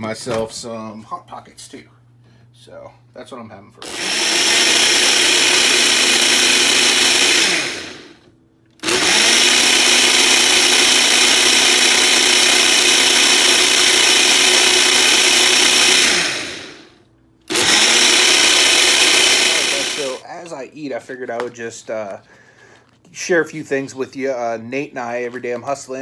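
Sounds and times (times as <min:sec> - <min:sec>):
blender motor running: 0:03.8 - 0:20.2.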